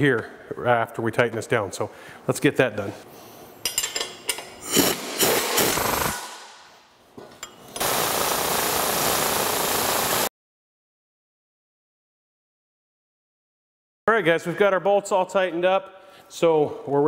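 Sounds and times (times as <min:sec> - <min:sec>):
pneumatic impact wrench hammering: 0:04.7 - 0:06.6.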